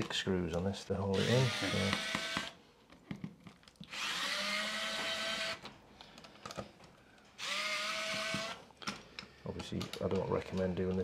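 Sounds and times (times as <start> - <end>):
electric screwdriver motor whine: 3.9 - 5.6, 7.4 - 8.6.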